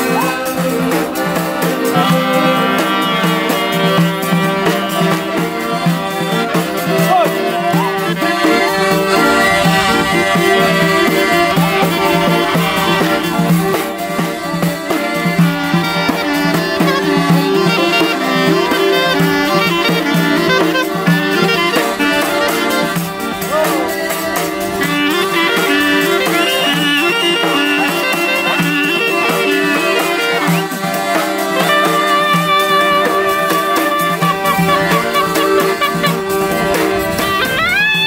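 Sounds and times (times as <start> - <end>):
accordions: 0.0 - 38.0
clarinet: 0.0 - 38.0
frame drum beating: 8.2 - 15.2.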